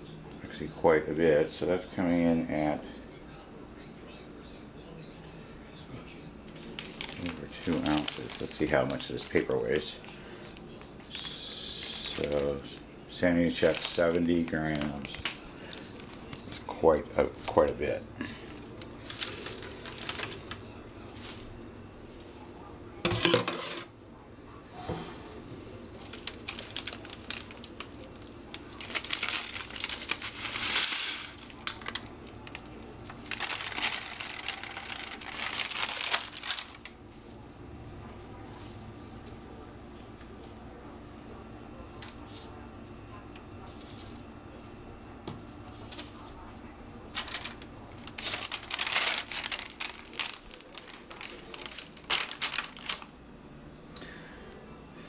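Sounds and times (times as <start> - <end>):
dry leaves crackling: 6.5 - 16.6, 17.4 - 21.6, 25.9 - 40.5, 45.7 - 53.2
crinkling paper and plastic: 6.5 - 23.3, 25.7 - 40.9, 41.8 - 44.8, 45.6 - 53.2.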